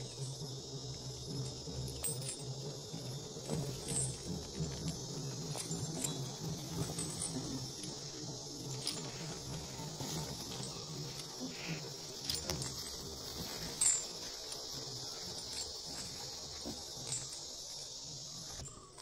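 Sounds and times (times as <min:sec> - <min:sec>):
insects droning: 0:00.0 - 0:19.0
metal chains clinking: 0:00.0 - 0:19.0.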